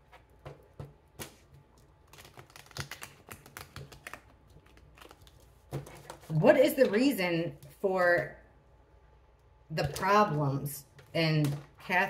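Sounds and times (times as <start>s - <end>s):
cards being shuffled: 0.1s - 6.4s.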